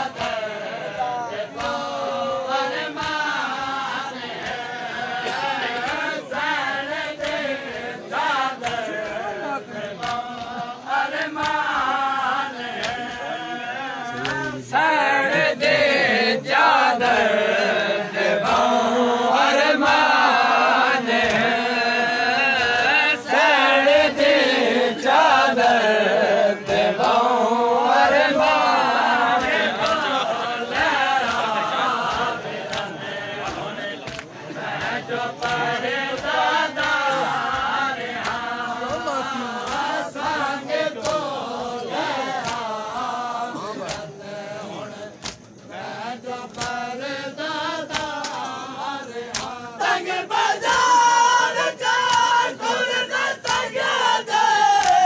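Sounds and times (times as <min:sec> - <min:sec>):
crowd of men chanting: 0:00.0 - 0:55.0
chest-beating slaps: 0:29.3 - 0:40.0, 0:42.3 - 0:42.8, 0:43.5 - 0:44.2, 0:46.5 - 0:46.9, 0:49.3 - 0:49.6.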